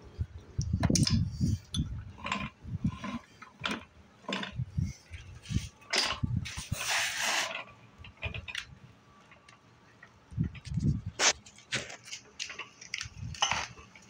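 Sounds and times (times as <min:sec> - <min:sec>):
metal parts knocking and clunking: 0:00.8 - 0:06.4, 0:11.7 - 0:14.0
rushing scrape: 0:06.4 - 0:07.7.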